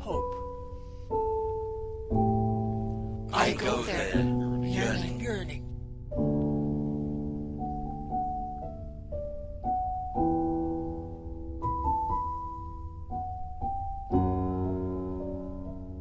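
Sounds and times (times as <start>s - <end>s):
slow solo piano music: 0.1s - 3.4s, 4.1s - 16.0s.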